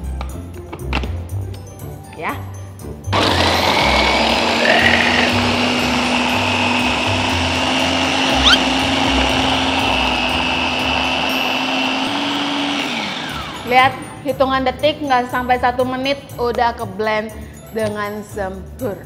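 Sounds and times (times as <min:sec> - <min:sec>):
electric food chopper motor hum: 0:03.2 - 0:13.8.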